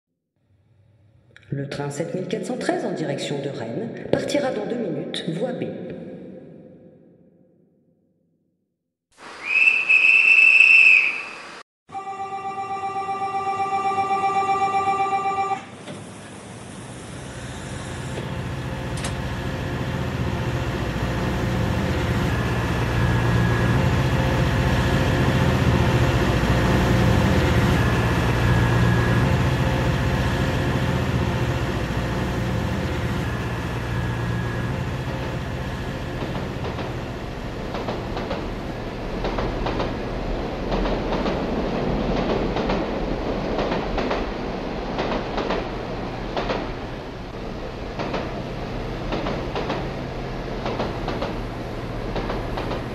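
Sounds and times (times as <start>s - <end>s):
electric train hum and rumble: 11.9s - 52.9s
wheels clacking over rail joints: 35.0s - 52.9s.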